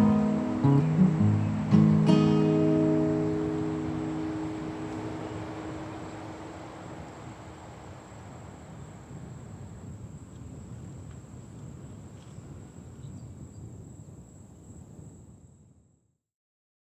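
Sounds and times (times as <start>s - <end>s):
low outdoor rumble: 0.0s - 9.0s
crickets trilling: 0.0s - 16.0s.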